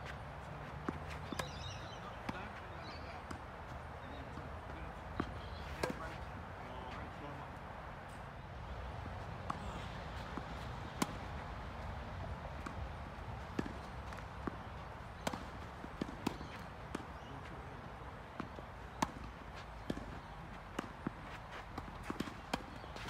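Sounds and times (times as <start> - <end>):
tennis ball knocks: 5.2 - 6.3.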